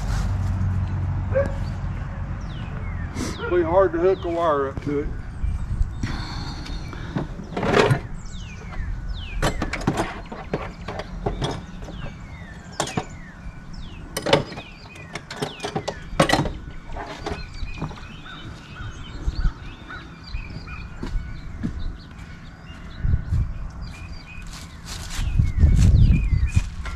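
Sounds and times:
birds chirping: 0.0 - 26.9
knocks and clanks of tools: 7.1 - 8.8, 9.4 - 13.2, 14.1 - 18.1.

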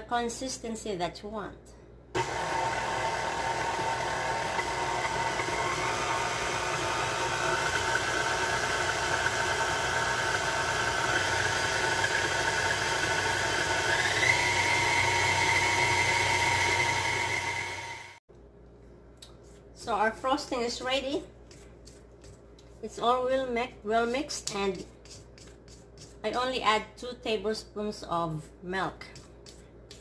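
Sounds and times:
stand mixer motor whining: 2.2 - 18.2.

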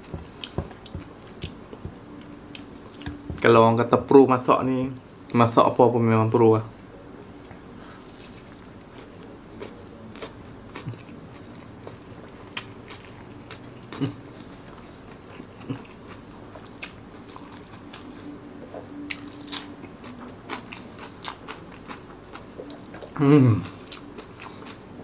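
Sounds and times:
wet chewing: 0.0 - 1.9.

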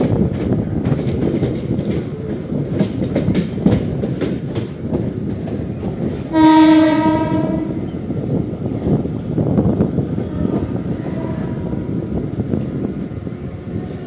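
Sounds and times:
train rumbling over rail joints: 0.0 - 14.0
train horn: 6.3 - 7.9, 10.3 - 11.8.

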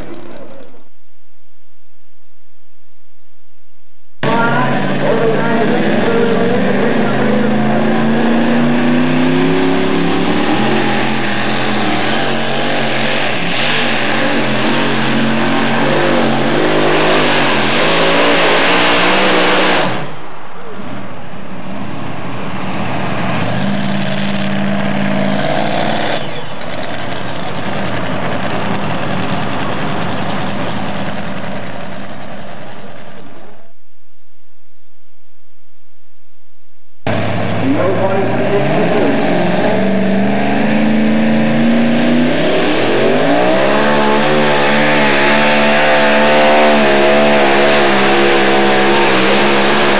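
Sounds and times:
engines revving: 0.0 - 0.9, 4.2 - 33.7, 37.0 - 49.9
engine running steadily: 4.2 - 17.3, 17.9 - 33.9, 37.0 - 42.6.

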